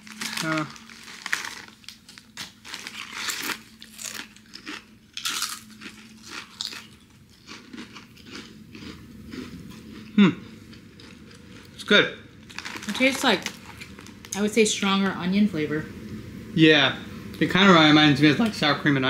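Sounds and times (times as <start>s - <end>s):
potato chips crunching: 0.0s - 14.5s.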